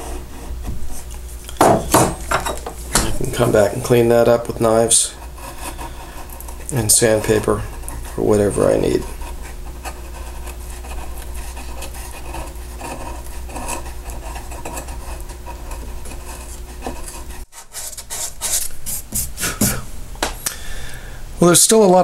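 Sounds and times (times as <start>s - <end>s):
knife scraping wood: 3.1s - 19.8s.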